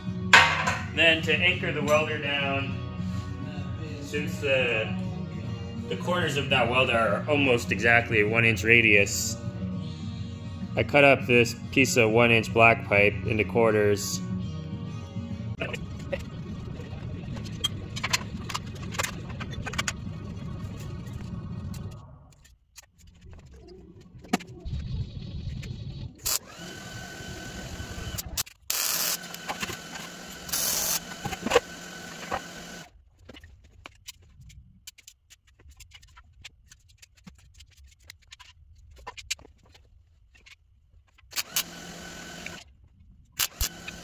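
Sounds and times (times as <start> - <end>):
steel knocks and clanks: 0.4 - 1.0
electric welding buzz and crackle: 26.2 - 32.9.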